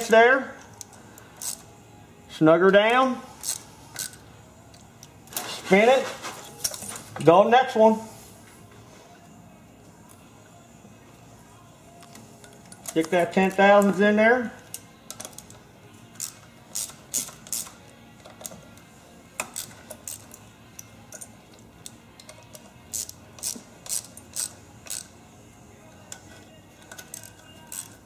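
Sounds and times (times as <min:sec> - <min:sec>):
hand ratchet clicking: 0:00.7 - 0:01.7, 0:03.4 - 0:05.2, 0:14.6 - 0:25.1, 0:26.1 - 0:28.0.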